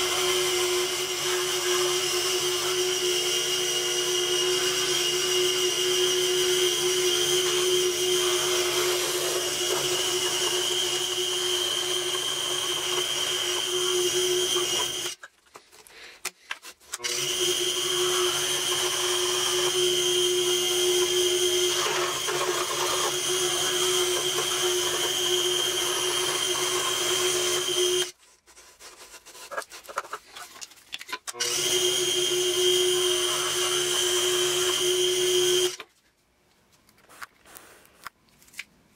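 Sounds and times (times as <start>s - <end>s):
scroll saw whining: 0.0s - 15.2s, 16.9s - 28.2s, 31.3s - 35.8s.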